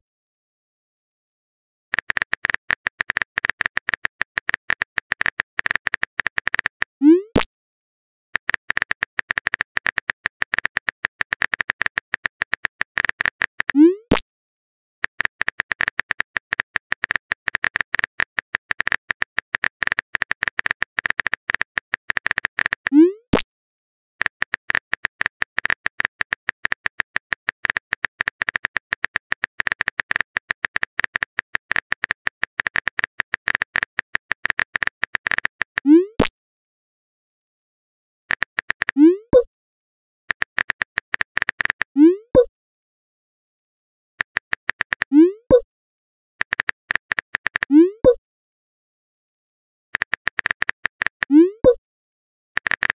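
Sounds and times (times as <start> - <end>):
phone keyboard tapping clicks: 1.9 - 7.5, 8.4 - 14.2, 15.0 - 23.4, 24.2 - 36.3, 38.3 - 39.5, 40.3 - 42.5, 44.2 - 45.6, 46.4 - 48.2, 50.0 - 51.8, 52.6 - 52.9.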